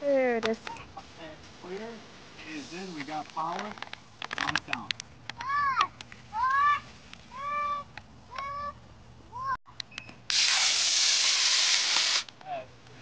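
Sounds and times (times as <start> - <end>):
rocket motor hissing: 10.3 - 12.3.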